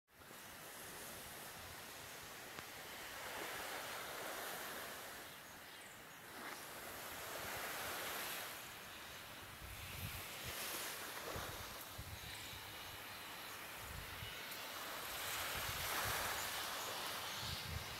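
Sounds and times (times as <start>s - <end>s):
small waves on sandy beach: 0.1s - 17.9s
wind rumble on microphone: 9.3s - 17.9s.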